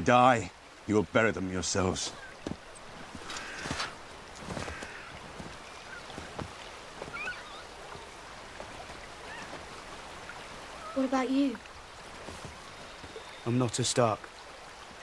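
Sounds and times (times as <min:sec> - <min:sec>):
soft rustling and handling: 0:02.0 - 0:10.0, 0:12.1 - 0:13.2
faint high squeaks: 0:07.1 - 0:07.7.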